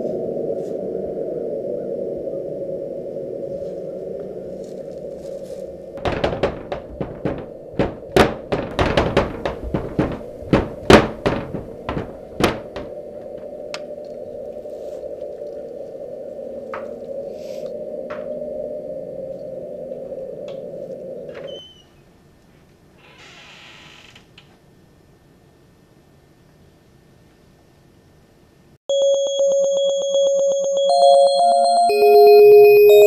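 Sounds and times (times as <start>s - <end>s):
loud knocks and thunks: 6.0s - 13.4s.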